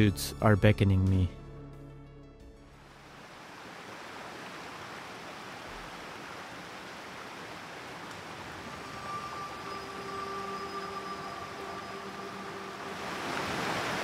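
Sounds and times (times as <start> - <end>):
steady rushing ambience: 8.0 - 14.0.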